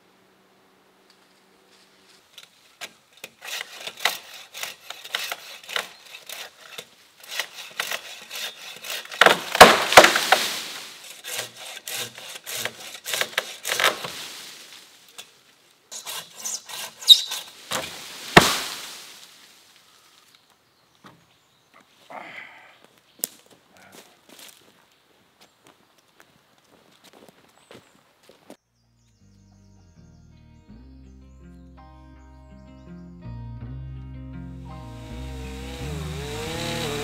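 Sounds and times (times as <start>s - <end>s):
leaves rustling: 1.0s - 20.7s, 34.7s - 37.0s
branches cracking and snapping: 2.1s - 11.2s, 12.6s - 15.6s, 17.1s - 20.6s, 23.2s - 23.6s, 34.9s - 37.0s.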